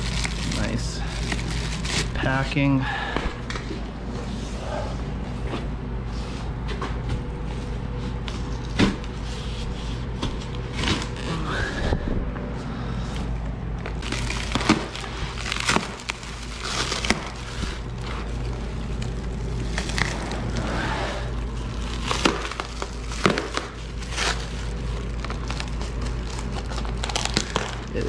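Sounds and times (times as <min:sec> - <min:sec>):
plastic bags rustling and crinkling: 0:00.0 - 0:02.7, 0:07.2 - 0:11.6, 0:13.8 - 0:28.0.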